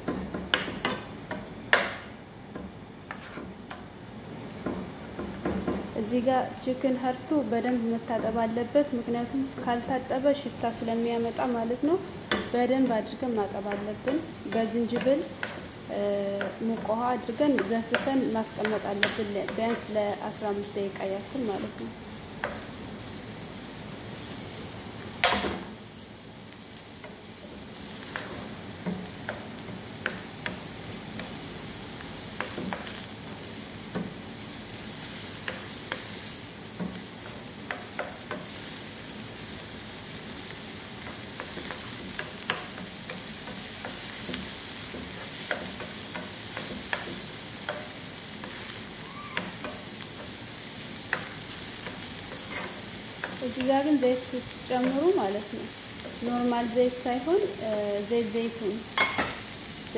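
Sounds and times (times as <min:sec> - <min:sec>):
spoon knocking on pan: 0:00.0 - 0:02.8, 0:59.0 - 0:59.4
onion sizzling in oil: 0:00.0 - 0:59.9
wooden spoon scraping a pan: 0:03.0 - 0:03.6, 0:41.0 - 0:54.2.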